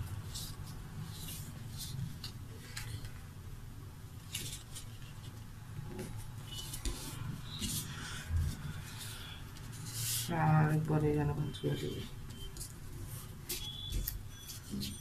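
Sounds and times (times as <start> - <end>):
paper rustling and creasing: 0.0 - 3.4, 4.2 - 11.0
faint steady hum: 0.0 - 15.0.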